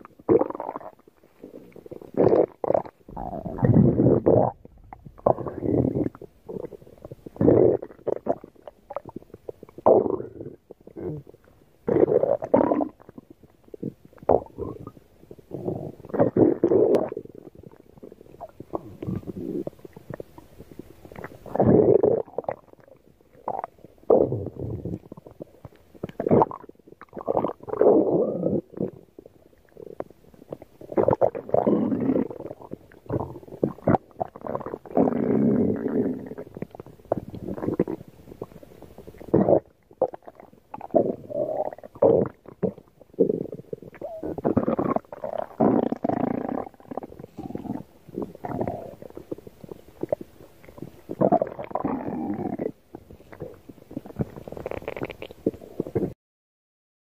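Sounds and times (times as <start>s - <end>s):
stomach growling and gurgling: 0.0s - 56.2s.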